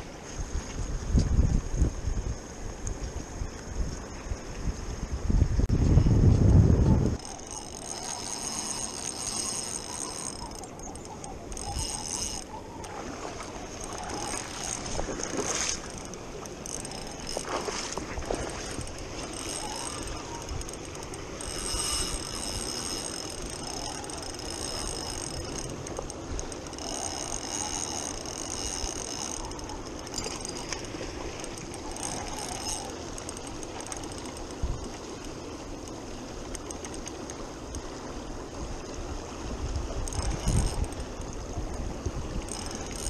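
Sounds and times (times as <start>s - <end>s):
fishing reel being cranked: 7.1s - 37.8s, 40.0s - 43.0s.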